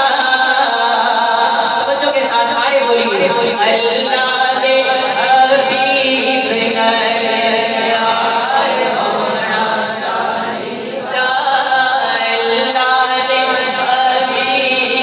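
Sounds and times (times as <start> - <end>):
men chanting through microphone: 3.1 - 15.0.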